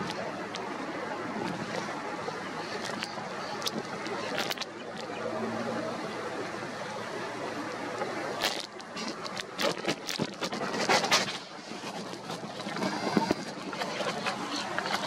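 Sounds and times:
sharp crackles and knocks: 1.4s - 5.2s, 8.0s - 15.0s.

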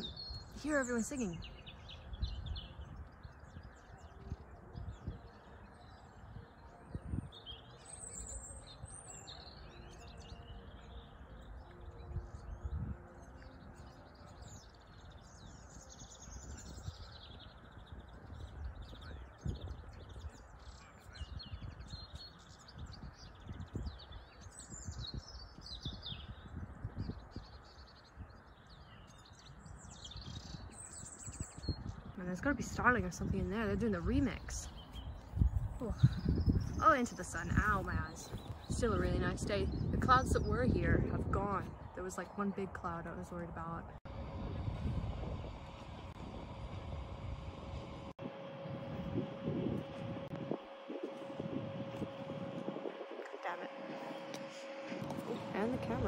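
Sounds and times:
finches twittering: 0.0s - 44.0s, 48.9s - 56.0s
other birds: 0.0s - 44.0s.

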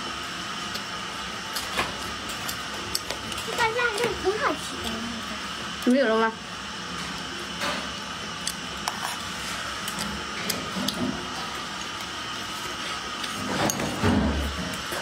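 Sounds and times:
person chewing: 2.3s - 3.5s, 8.4s - 13.4s.

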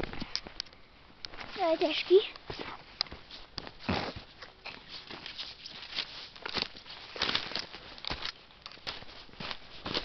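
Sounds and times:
footsteps crunching dry leaves: 2.5s - 10.0s.

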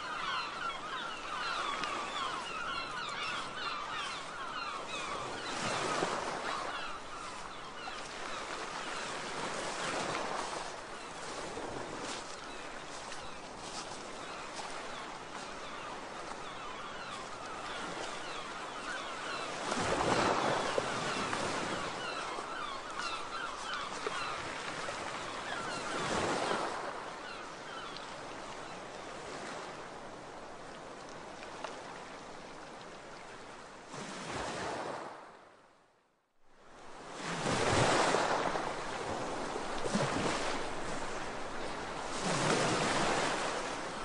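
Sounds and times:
sea waves washing on shore: 0.0s - 35.2s, 36.8s - 44.0s.

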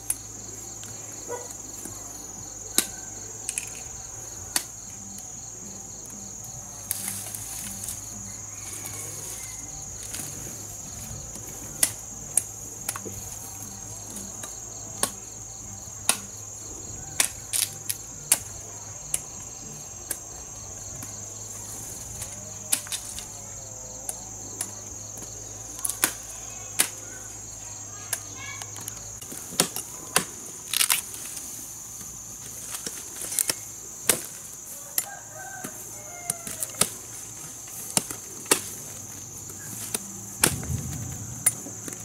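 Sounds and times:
insects chirring: 0.0s - 42.0s.

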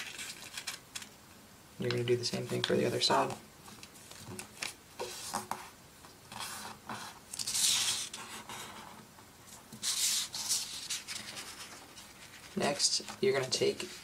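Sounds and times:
paper rustling and sliding: 3.6s - 5.7s, 6.3s - 14.0s.

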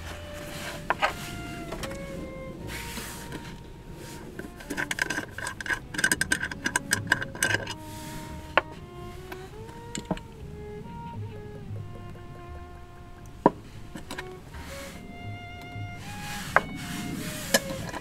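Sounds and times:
soft background music: 0.0s - 18.0s
metal flask clicks and scrapes: 4.4s - 8.7s, 17.4s - 18.0s.

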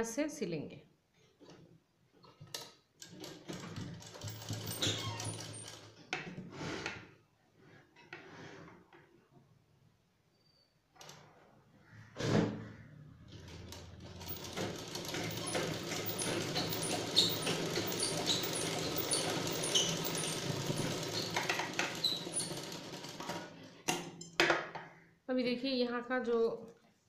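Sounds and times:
sewing machine stitching: 2.7s - 7.0s, 13.3s - 23.9s.

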